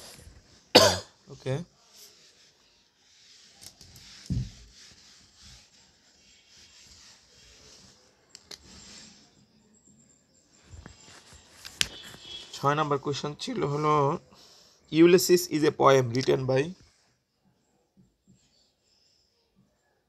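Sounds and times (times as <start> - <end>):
cloth rubbing on whiteboard: 1.7 - 9.4, 10.6 - 14.2
dull thump: 4.3 - 4.6.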